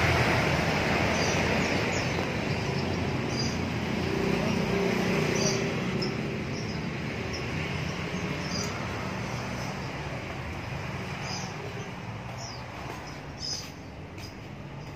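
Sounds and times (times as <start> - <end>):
road traffic rumble: 0.0 - 14.9
high bird chirps: 5.1 - 14.9.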